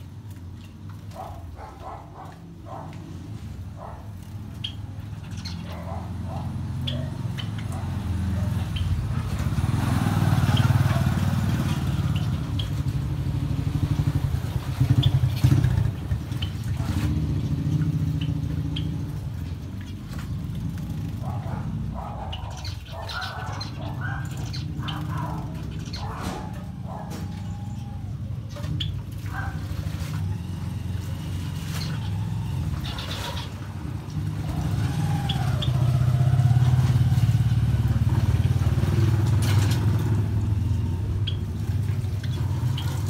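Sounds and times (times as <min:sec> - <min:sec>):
low vehicle engine rumble: 0:00.0 - 0:43.0
finches chirping: 0:21.2 - 0:29.6, 0:31.6 - 0:33.7.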